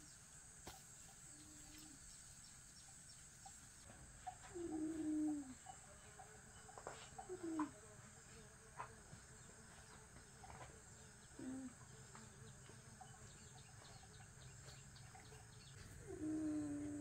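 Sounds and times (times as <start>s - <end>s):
steady high hiss: 0.0s - 7.0s
short low calls: 16.0s - 17.0s.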